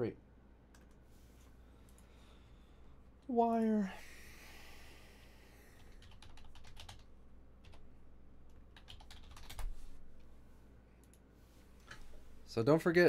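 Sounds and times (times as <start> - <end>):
computer keyboard typing: 5.8 - 7.9, 8.5 - 9.9.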